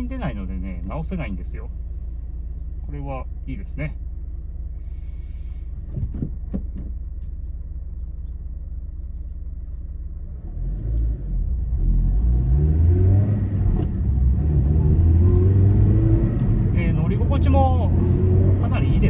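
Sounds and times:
car engine accelerating in cabin: 0:09.0 - 0:19.0.

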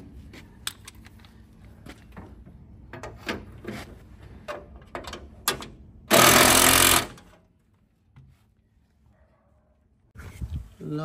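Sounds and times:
power drill burst: 0:06.1 - 0:07.2.

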